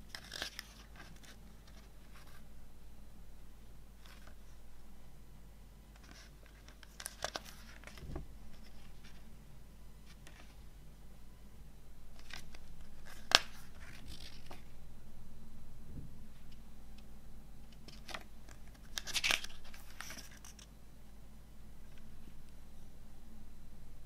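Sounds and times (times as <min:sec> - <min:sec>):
paper pages rustling: 0:00.1 - 0:02.4, 0:04.0 - 0:04.6, 0:05.9 - 0:09.3, 0:10.0 - 0:10.6, 0:12.1 - 0:14.7, 0:17.7 - 0:20.7.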